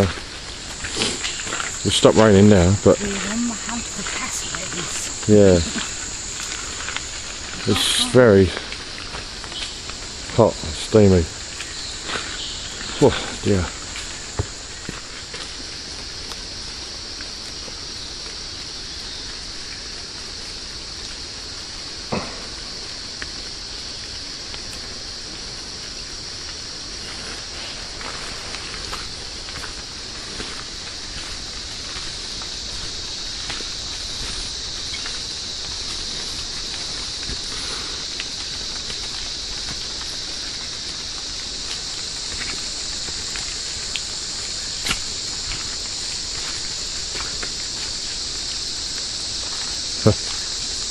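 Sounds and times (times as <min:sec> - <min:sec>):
background hiss: 0:00.0 - 0:50.9
high-pitched insect chorus: 0:00.0 - 0:50.9.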